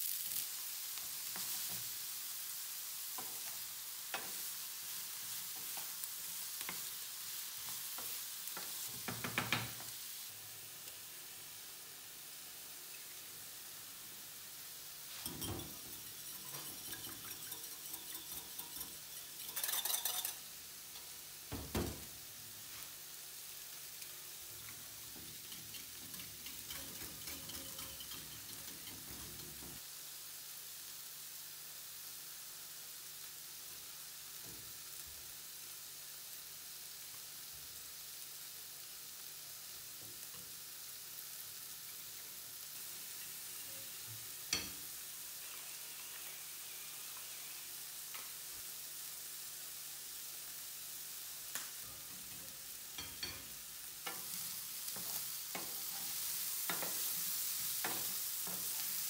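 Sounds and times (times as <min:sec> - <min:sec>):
whisk beating egg in glass bowl: 0:15.2 - 0:20.4, 0:25.5 - 0:29.7.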